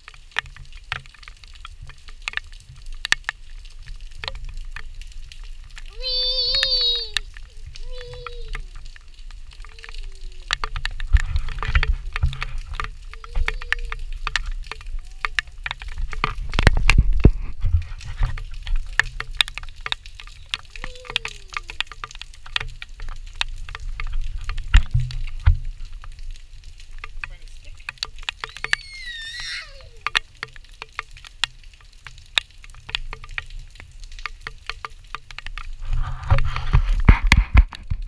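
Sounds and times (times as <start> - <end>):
rain drops tapping: 0.0 - 38.0
toddler babbling: 5.9 - 8.8, 9.6 - 10.6, 13.1 - 14.1, 15.0 - 15.6, 20.4 - 21.8, 28.4 - 30.2.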